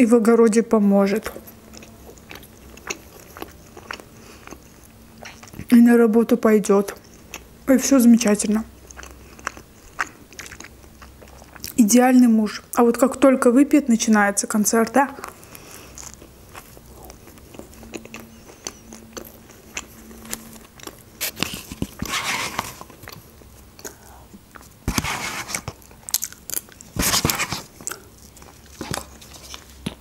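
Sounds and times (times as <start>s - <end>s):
chewing with wet mouth clicks: 1.2s - 5.7s, 6.9s - 7.5s, 8.8s - 11.8s, 15.2s - 22.1s, 22.8s - 24.8s, 25.7s - 27.0s, 27.7s - 30.0s.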